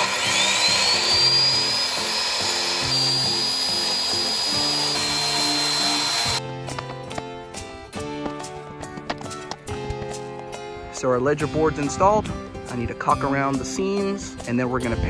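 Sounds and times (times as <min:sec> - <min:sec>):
power drill motor whine: 0:00.0 - 0:06.4
background music: 0:00.0 - 0:15.0.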